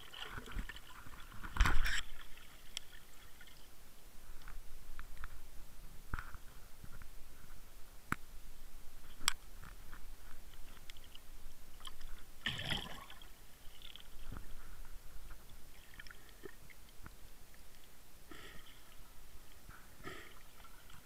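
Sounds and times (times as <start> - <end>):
underwater clicks and crackles: 0.0 - 3.7, 4.3 - 8.3, 9.0 - 18.0
water gurgling: 0.0 - 3.8, 10.7 - 14.4.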